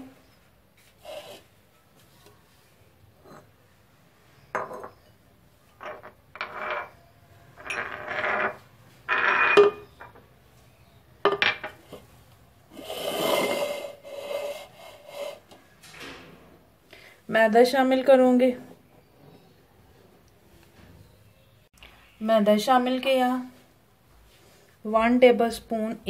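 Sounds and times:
bowl scraping and ringing: 0:04.4 - 0:10.1, 0:12.7 - 0:15.5
bowls clinking on countertop: 0:04.5 - 0:07.0, 0:07.6 - 0:10.2.

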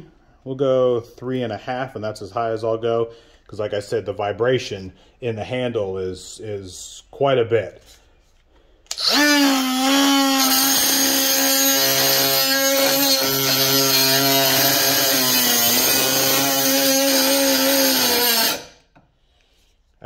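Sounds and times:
cutoff wheel grinding metal: 0:08.9 - 0:18.8
die grinder whining: 0:08.9 - 0:18.8.

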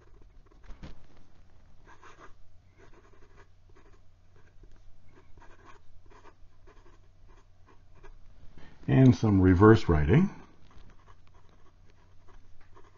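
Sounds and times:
fountain pen scratching on paper: 0:00.0 - 0:00.6, 0:01.9 - 0:08.2, 0:10.7 - 0:12.9.

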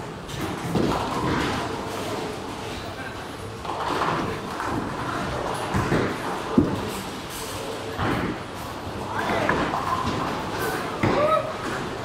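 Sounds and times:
bowling balls and pins knocking: 0:03.7 - 0:07.0.

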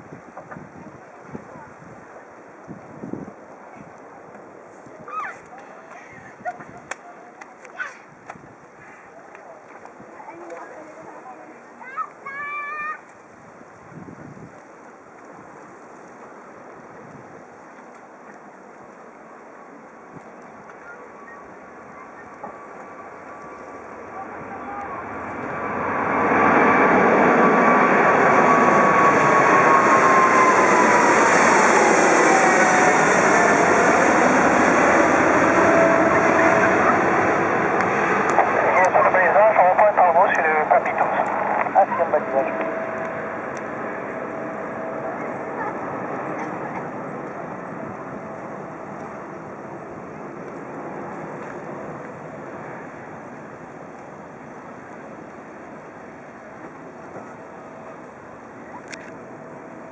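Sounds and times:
jet airliner climbing overhead: 0:00.0 - 0:59.9
falling whining tone: 0:24.1 - 0:38.2.

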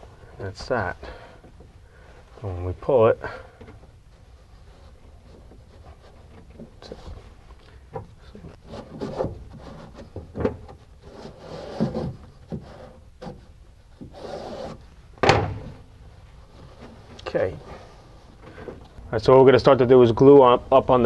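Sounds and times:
sudden knock: 0:15.2 - 0:15.8.

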